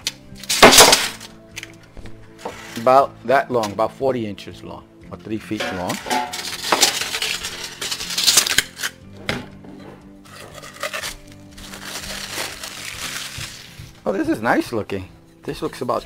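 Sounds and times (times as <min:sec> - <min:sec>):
background music: 0:00.0 - 0:16.0
plastic wrapping rustling: 0:05.8 - 0:09.0, 0:10.3 - 0:14.1.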